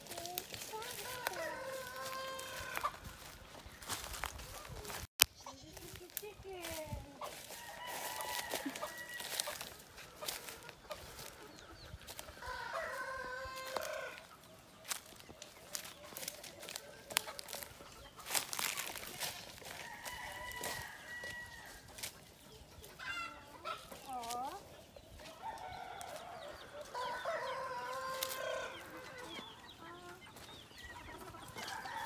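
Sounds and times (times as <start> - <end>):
chickens clucking: 0.0 - 32.0
steps crunching on dry leaves: 0.0 - 32.0
rooster crowing: 1.0 - 3.0, 7.3 - 9.7, 12.4 - 14.3, 19.7 - 21.8, 25.4 - 29.3, 31.6 - 32.0.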